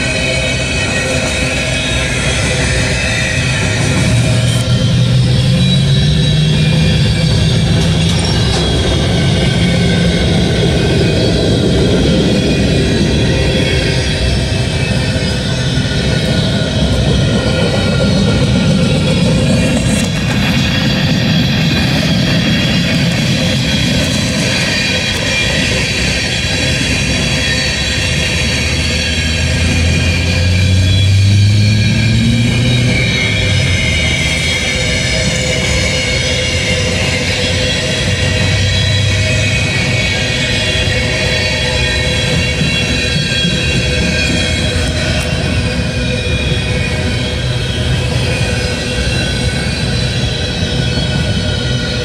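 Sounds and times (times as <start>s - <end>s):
diesel freight train engine drone: 0.0s - 52.0s
high ringing wheel tones: 0.0s - 52.0s.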